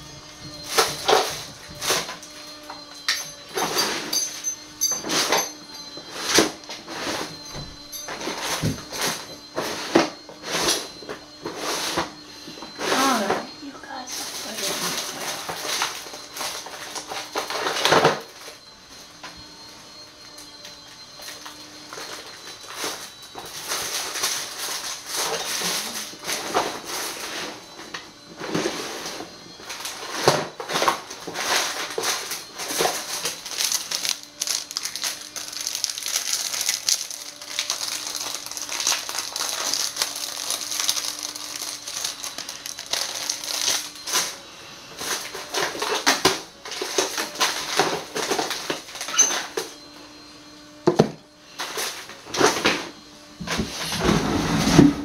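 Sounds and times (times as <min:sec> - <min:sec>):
packaging crinkling: 0:31.4 - 0:44.3.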